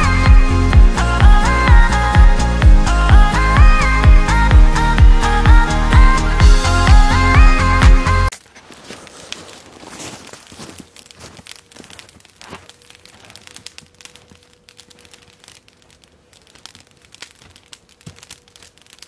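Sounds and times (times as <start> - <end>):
footsteps crunching in snow: 8.3 - 18.8
campfire crackling and popping: 8.3 - 19.0.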